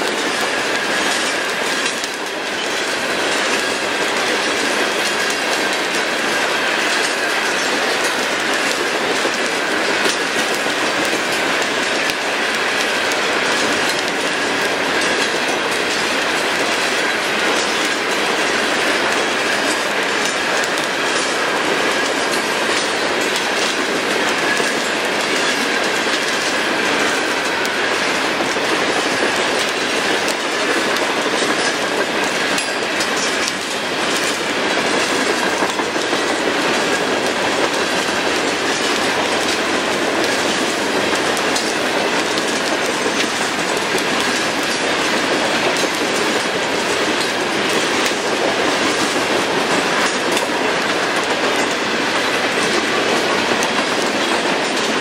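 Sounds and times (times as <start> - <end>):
steel wheels rumbling on rail: 0.0 - 55.0
wheels clacking over rail joints: 0.0 - 55.0.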